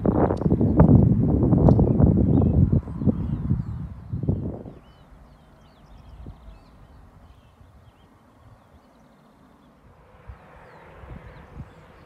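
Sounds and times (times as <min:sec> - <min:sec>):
wind rumbling on microphone: 0:00.0 - 0:09.1, 0:09.7 - 0:12.0
faint chirping bird calls: 0:01.6 - 0:12.0.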